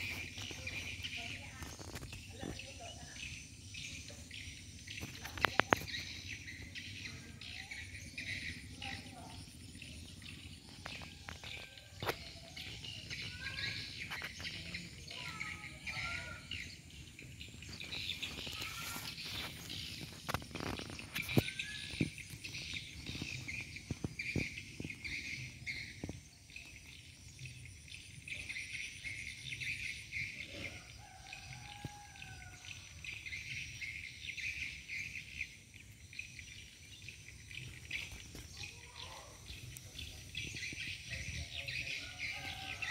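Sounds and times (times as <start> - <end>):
insect chorus: 0.0 - 42.9
birds whistling: 17.5 - 26.2.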